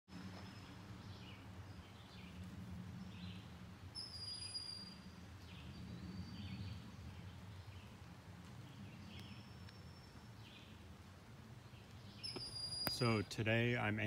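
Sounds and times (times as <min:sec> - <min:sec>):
steady low rumble: 0:00.2 - 0:04.0, 0:04.9 - 0:12.2
faint bird chirps: 0:04.0 - 0:06.8, 0:12.0 - 0:13.3.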